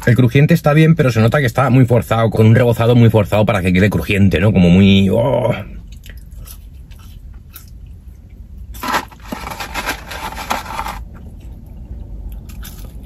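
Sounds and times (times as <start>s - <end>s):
crunchy food being chewed: 5.9s - 13.0s.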